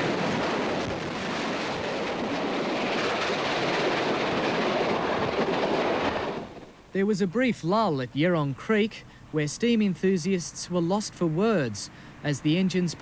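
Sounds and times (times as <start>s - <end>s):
steam train rushing past: 0.0s - 6.8s.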